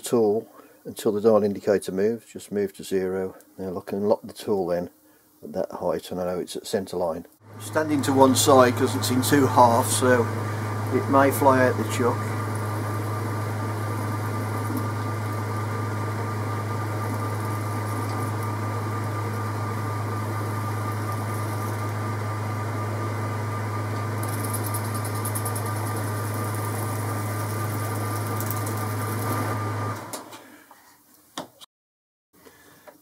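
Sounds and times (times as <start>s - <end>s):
metal lathe humming: 7.5s - 30.1s.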